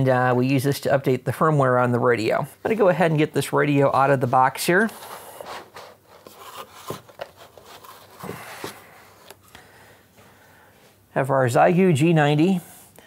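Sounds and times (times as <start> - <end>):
cardboard packaging rustling and scraping: 4.1 - 9.5.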